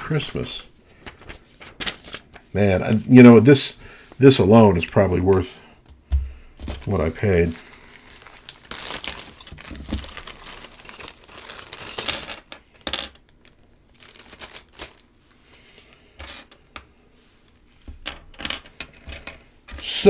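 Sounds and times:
plastic bag crinkling: 6.6s - 12.5s, 13.4s - 15.2s.

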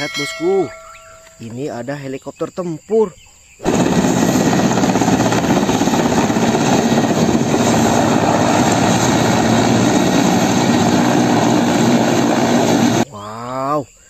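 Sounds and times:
helicopter rotor and turbines: 3.6s - 13.1s.

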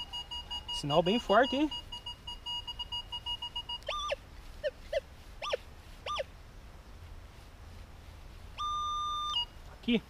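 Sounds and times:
metal detector rising and falling tones: 0.0s - 4.2s, 8.6s - 9.5s
metal detector fast beeping: 0.0s - 4.8s, 5.4s - 6.2s, 8.6s - 9.6s.

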